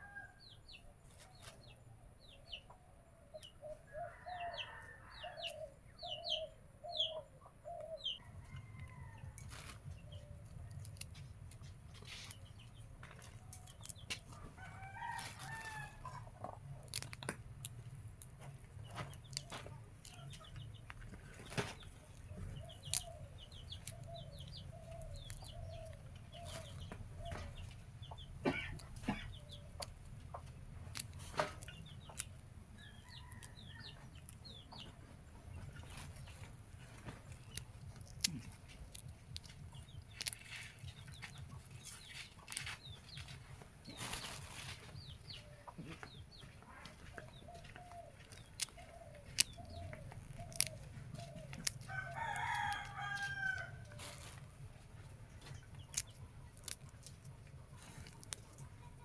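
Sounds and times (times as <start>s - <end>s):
chickens clucking: 0.7s - 59.0s
rooster crowing: 3.9s - 5.7s, 8.2s - 9.5s, 14.5s - 16.1s, 51.8s - 54.0s
calyces snapping off pods: 9.3s - 46.2s, 47.1s - 54.6s, 55.4s - 58.7s.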